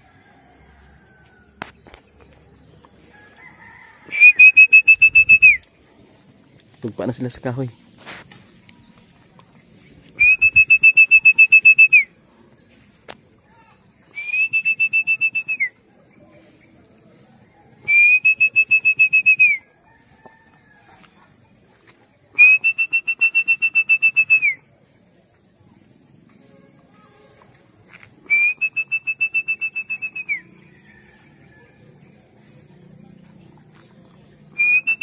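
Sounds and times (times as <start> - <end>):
pea whistle trilling blasts: 4.1 - 5.6, 10.2 - 12.1, 14.1 - 15.7, 17.9 - 19.6, 22.4 - 24.6, 28.3 - 30.4, 34.6 - 35.0.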